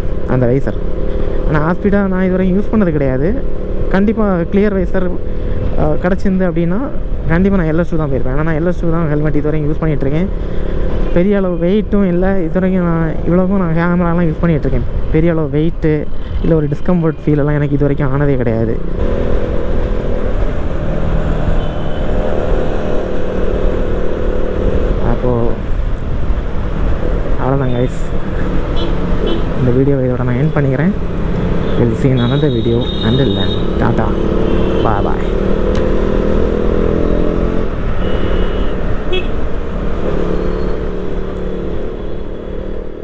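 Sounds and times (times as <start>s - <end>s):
road rumble: 0.0s - 43.0s
wind: 0.0s - 43.0s
motorcycle engine cruising: 18.7s - 43.0s
vehicle horn tooting: 28.8s - 29.6s, 31.6s - 33.8s, 34.4s - 35.2s, 38.0s - 39.4s.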